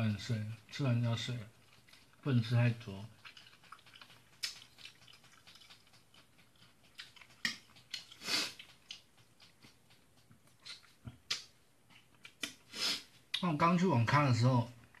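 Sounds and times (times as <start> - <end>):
person chewing: 0.5 - 13.4.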